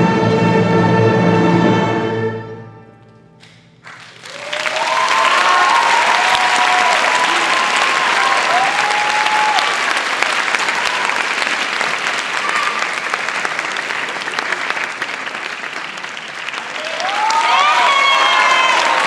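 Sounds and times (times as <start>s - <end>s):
audience applause: 3.8s - 19.0s
audience cheering: 3.9s - 19.0s.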